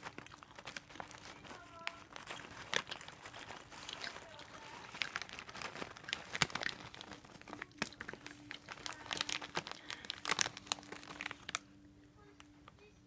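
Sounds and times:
snack bag crinkling: 0.0 - 12.5.

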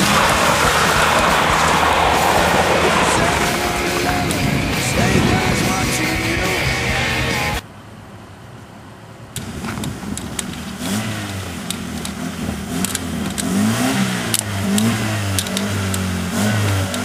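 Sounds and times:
car engine revving: 0.0 - 7.6, 9.4 - 17.0
sharp clicks and knocks: 9.4 - 13.6.

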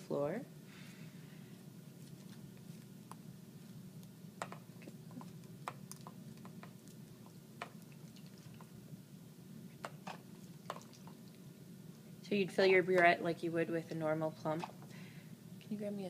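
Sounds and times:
steady low hum: 0.0 - 16.0
liquid dripping: 4.4 - 8.8, 9.8 - 11.5.

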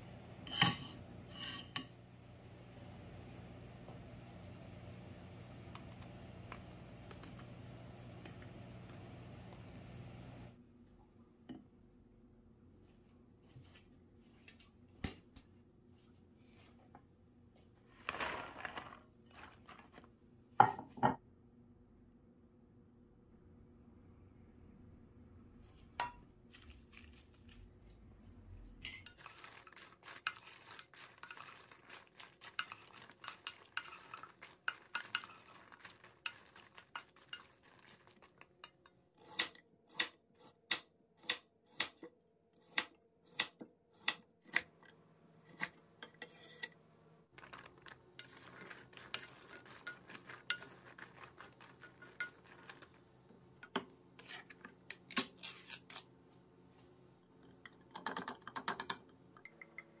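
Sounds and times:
spoon stirring peppers in a pan: 0.4 - 2.0, 28.8 - 44.8, 45.5 - 56.1.

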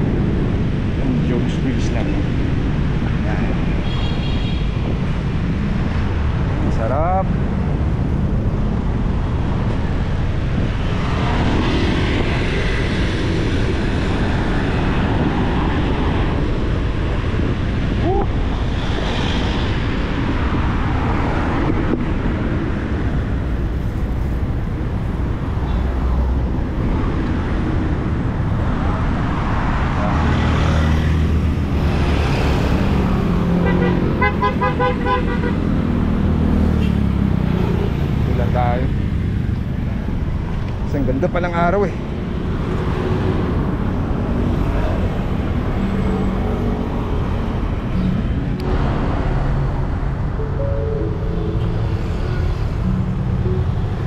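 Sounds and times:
cars and motorcycles passing: 0.0 - 54.0
road traffic rumble: 0.0 - 54.0
vehicle horn tooting: 33.7 - 35.6.

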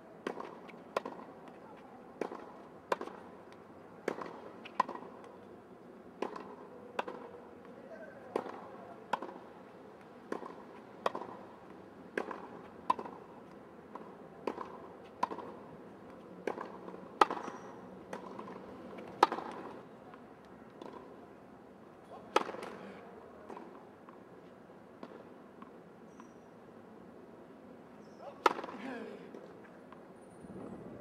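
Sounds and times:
tennis ball struck by racket: 4.0 - 5.2, 6.2 - 7.3, 10.3 - 11.5, 12.1 - 13.3, 13.9 - 15.6, 16.4 - 19.8, 22.3 - 22.8, 28.4 - 28.8.

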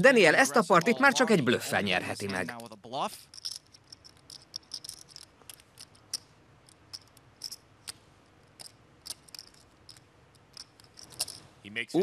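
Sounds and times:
poker chips clicking: 2.5 - 11.4.

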